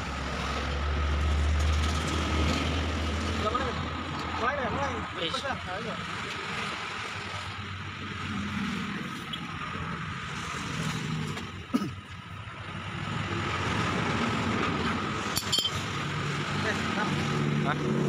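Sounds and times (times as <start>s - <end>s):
wrench clinking on metal: 15.4s - 15.8s.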